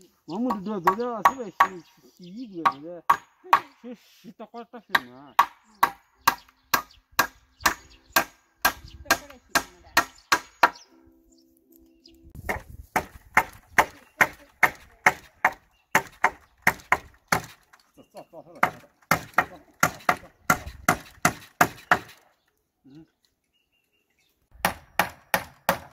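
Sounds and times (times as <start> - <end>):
hammer driving nails into wood: 18.6 - 22.2, 24.6 - 25.9.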